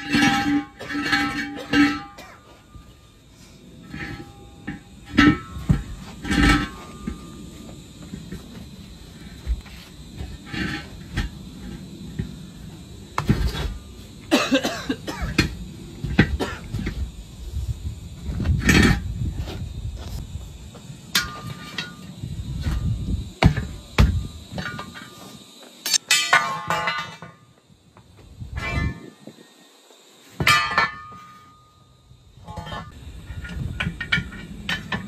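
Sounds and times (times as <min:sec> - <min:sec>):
metal knocks and clanks: 0:00.0 - 0:02.9, 0:03.8 - 0:08.7, 0:32.4 - 0:35.0
low steady background noise: 0:00.0 - 0:35.0.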